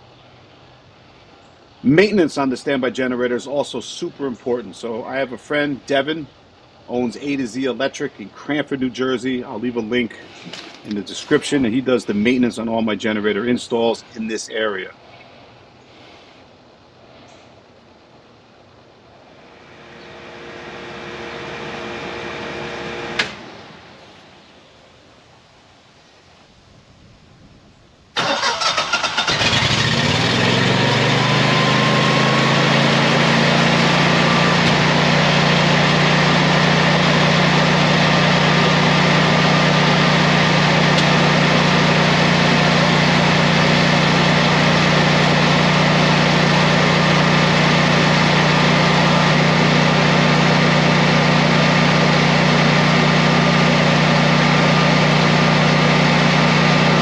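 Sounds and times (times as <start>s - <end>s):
generator engine starting and running: 6.8s - 12.8s, 19.3s - 24.2s, 28.2s - 57.0s.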